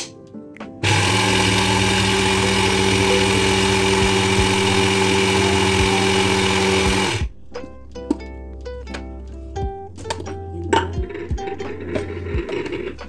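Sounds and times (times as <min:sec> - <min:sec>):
mixer grinder running: 0:00.8 - 0:07.4.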